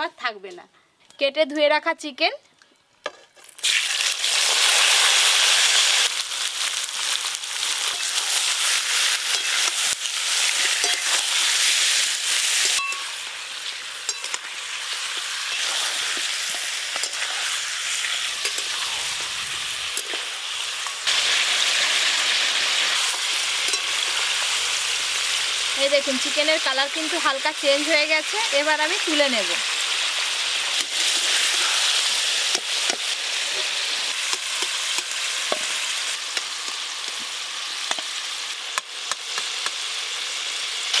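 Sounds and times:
chicken sizzling in hot oil: 3.3s - 41.0s
metal spatula scraping pan: 15.4s - 19.3s.

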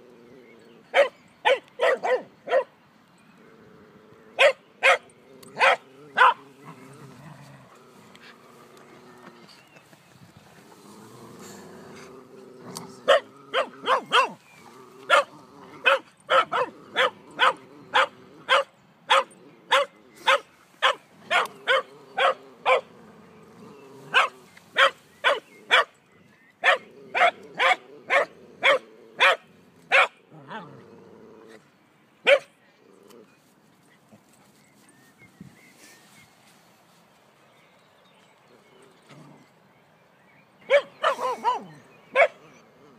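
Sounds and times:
dog growling: 0.0s - 0.9s, 5.1s - 9.8s, 10.6s - 18.5s, 21.2s - 24.6s, 26.8s - 31.7s
dog barking: 1.0s - 2.7s, 4.4s - 5.0s, 5.6s - 6.4s, 13.1s - 14.4s, 15.1s - 22.9s, 24.1s - 25.9s, 26.6s - 30.2s, 32.3s - 32.5s, 40.7s - 42.4s.

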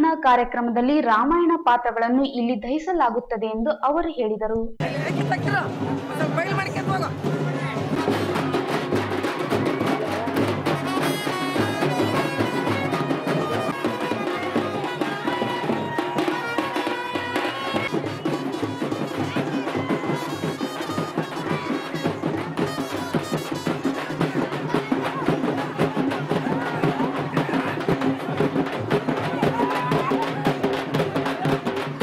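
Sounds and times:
drums beating: 4.6s - 32.0s
wind instrument melody: 7.4s - 24.6s.

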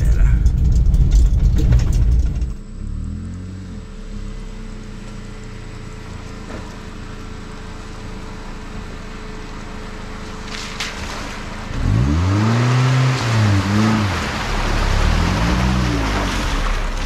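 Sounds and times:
car engine running: 0.0s - 17.0s
tyres splashing through water: 10.2s - 17.0s.

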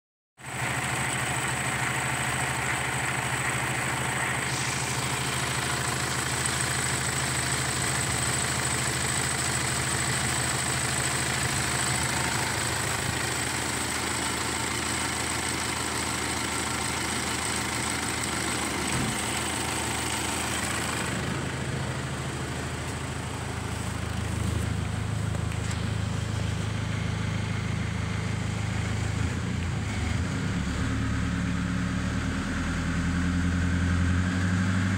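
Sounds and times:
diesel engine idling: 0.4s - 34.9s.

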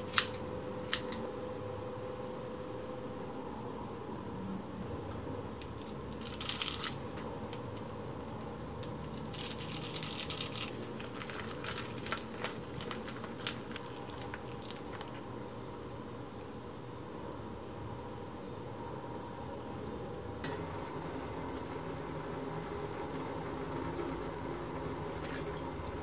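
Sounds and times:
faint steady hum: 0.0s - 26.0s
plastic packets crinkling: 5.7s - 7.9s, 8.8s - 15.3s.

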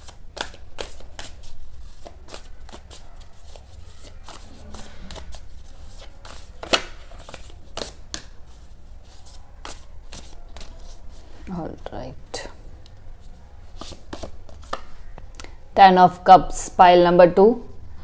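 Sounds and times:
cards being shuffled: 0.0s - 11.2s, 13.2s - 15.3s.

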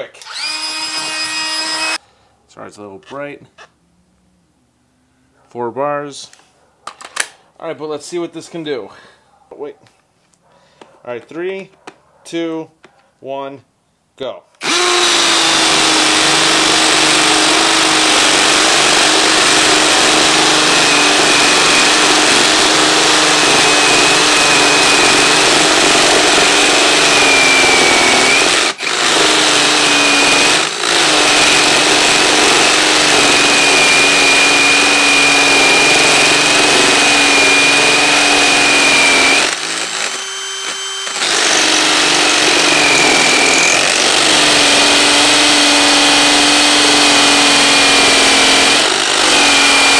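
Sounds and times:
hammer drill drilling into concrete: 0.0s - 2.0s, 14.6s - 49.9s.

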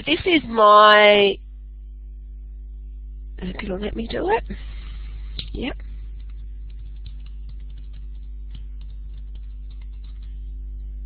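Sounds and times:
low electrical hum: 0.0s - 11.0s
keyboard typing clicks: 6.2s - 10.3s.

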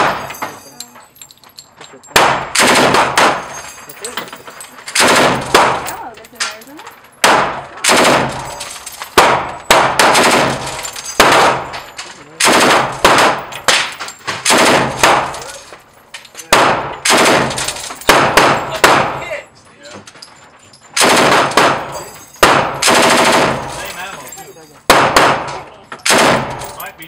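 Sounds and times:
automatic gunfire bursts with echo: 2.2s - 3.4s, 7.2s - 8.4s, 9.2s - 10.6s, 11.2s - 11.6s, 12.4s - 13.4s, 14.5s - 15.2s, 16.6s - 19.1s, 21.0s - 21.8s, 22.4s - 23.7s.

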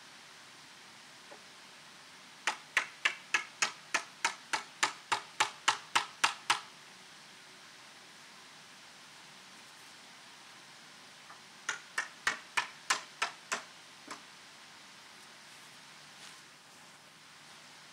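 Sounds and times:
mallet knocking wooden peg: 2.5s - 6.6s, 11.7s - 14.2s.

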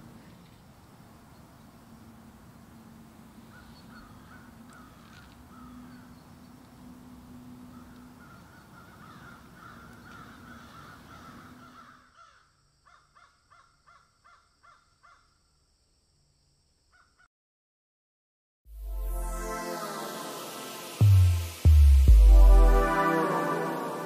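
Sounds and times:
short evenly spaced bird calls: 0.0s - 15.6s
faint bird calls: 3.4s - 15.4s.

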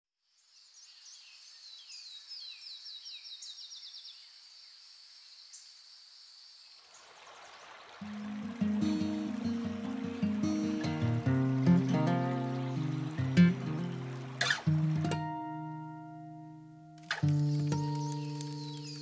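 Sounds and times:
songbird chirping: 0.2s - 19.0s
insect buzz: 0.3s - 15.9s, 17.0s - 19.0s
river rushing: 6.8s - 16.0s.

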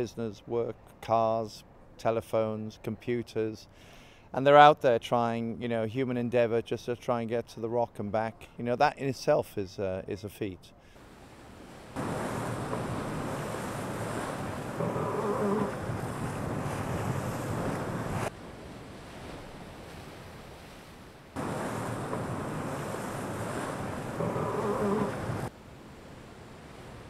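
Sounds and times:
waves and spray rushing: 11.0s - 27.0s
wind buffeting microphone: 12.0s - 20.6s, 21.4s - 25.5s.

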